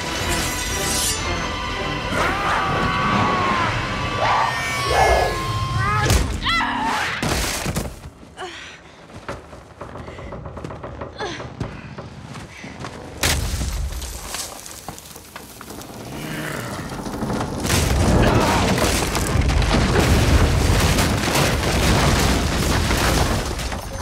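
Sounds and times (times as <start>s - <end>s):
dense crashing: 13.2s - 24.0s.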